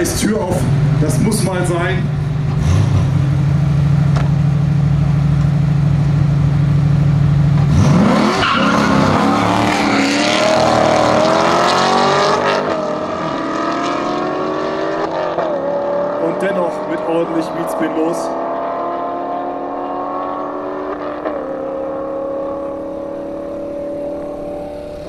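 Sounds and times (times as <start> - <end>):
cars accelerating hard: 2.5 - 3.7, 7.6 - 25.0.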